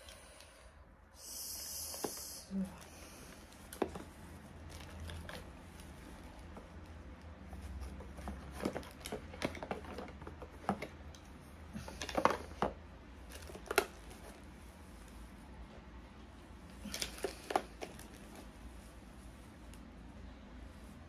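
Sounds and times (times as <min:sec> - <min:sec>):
packaging rustling: 0:03.3 - 0:15.4, 0:16.7 - 0:19.2.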